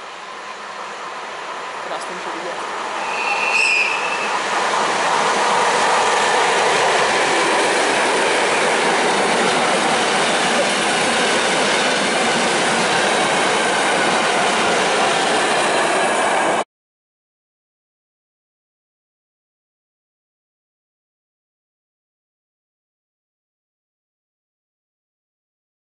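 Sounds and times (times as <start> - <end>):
train wheels on rails: 0.0 - 16.6
high squeal: 3.0 - 4.4.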